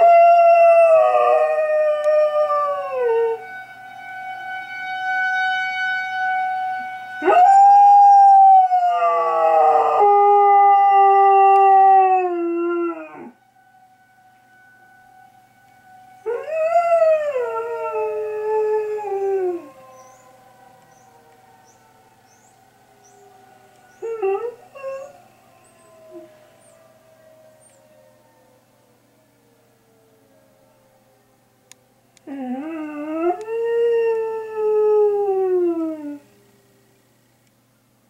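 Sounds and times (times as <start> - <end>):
air raid siren wailing: 0.0 - 37.9
dog howling: 16.2 - 23.2, 23.8 - 28.7.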